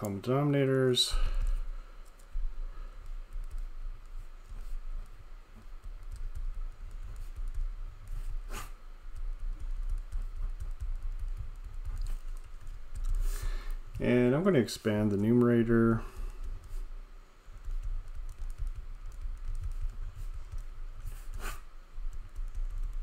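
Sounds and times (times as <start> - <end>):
steady low hum: 0.0 - 23.0
pen scratching on paper: 4.2 - 8.8, 19.6 - 21.7.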